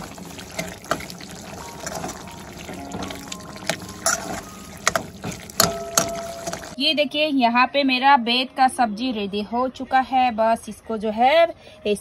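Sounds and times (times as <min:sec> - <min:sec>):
gravy simmering: 0:00.0 - 0:06.8
metal spoon scraping a wok: 0:00.4 - 0:02.3, 0:03.7 - 0:06.8.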